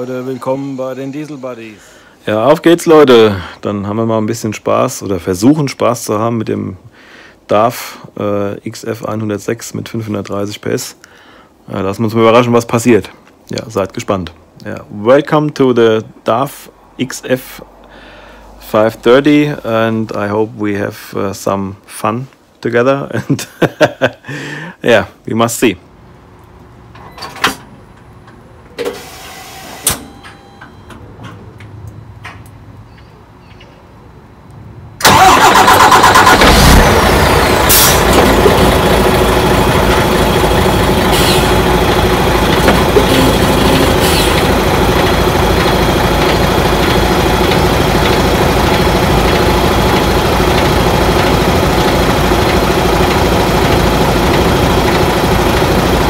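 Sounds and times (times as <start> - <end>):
diesel engine idling: 35.0 - 56.0
diesel truck engine starting: 35.0 - 56.0.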